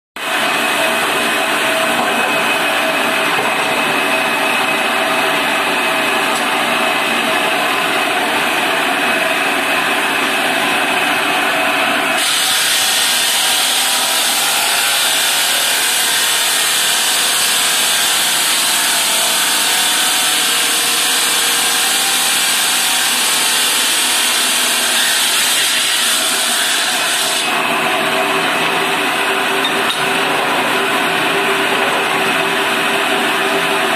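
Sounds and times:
stone cutter motor whine: 0:11.4 - 0:33.9.

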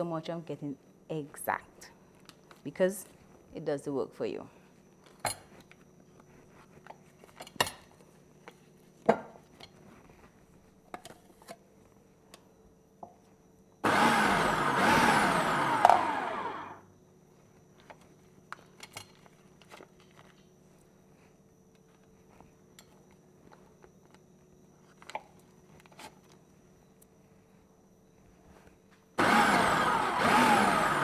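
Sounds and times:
food processor motor running: 0:13.8 - 0:16.8, 0:29.2 - 0:31.0.

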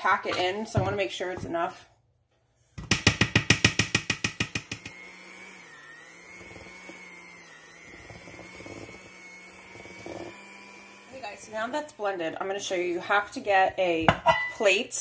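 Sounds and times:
mixer motor hum: 0:04.0 - 0:12.4
hand mixer clattering in dough: 0:06.1 - 0:12.0.

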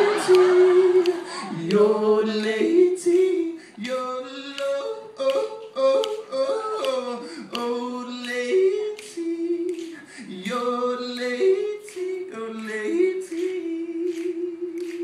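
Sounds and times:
finger snaps: 0:03.1 - 0:11.3, 0:13.3 - 0:15.0.

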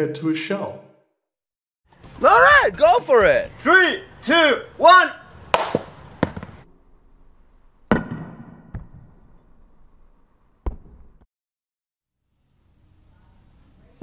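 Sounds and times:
hammer striking bowling ball: 0:05.5 - 0:06.5.

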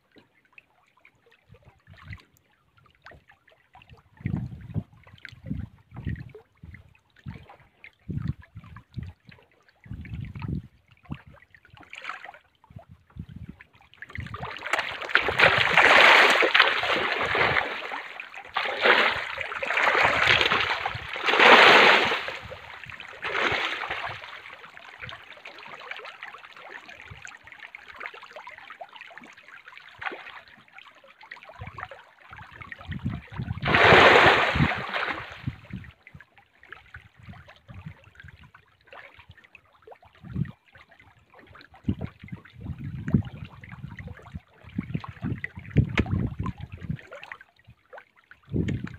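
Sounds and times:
fish splashing at water surface: 0:14.4 - 0:24.5, 0:33.6 - 0:35.5.

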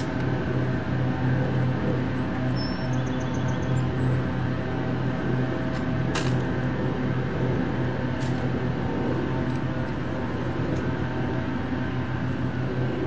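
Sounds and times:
low background drone: 0:00.0 - 0:13.0.

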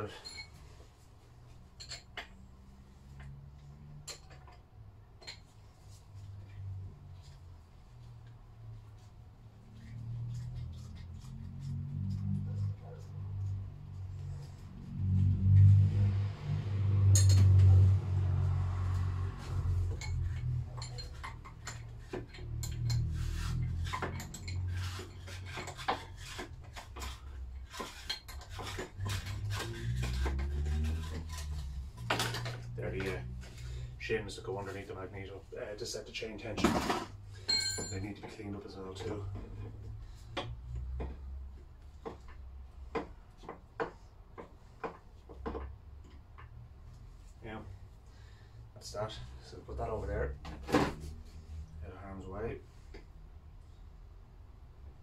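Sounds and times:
metallic clinks of hand tools: 0:37.4 - 0:38.1.

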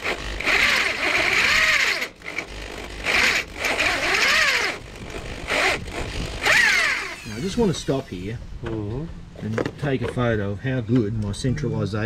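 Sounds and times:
electric drill boring metal: 0:00.0 - 0:08.2.

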